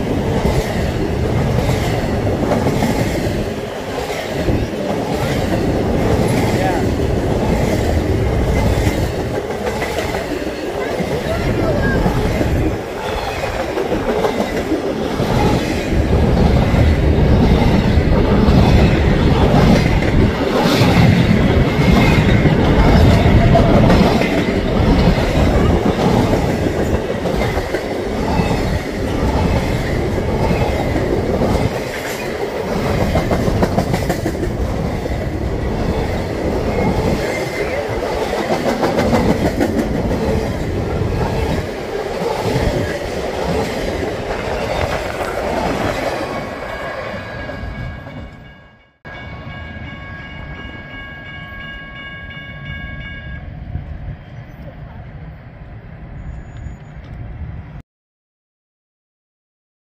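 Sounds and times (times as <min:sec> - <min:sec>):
steel wheels rumbling on rail: 0:00.0 - 0:57.8
faint high wheel squeal: 0:56.1 - 0:57.1.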